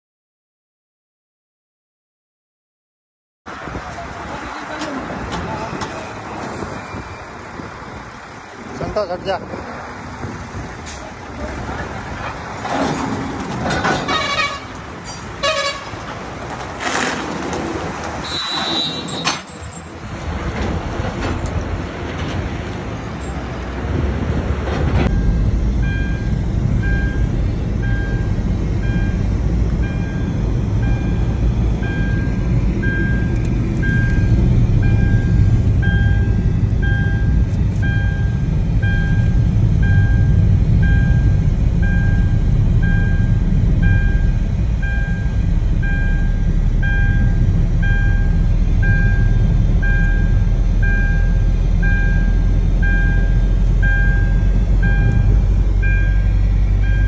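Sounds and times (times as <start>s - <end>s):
car engine and road noise: 3.5s - 57.0s
outdoor traffic noise: 3.5s - 57.0s
short high beeps: 18.2s - 19.3s, 29.8s - 57.0s.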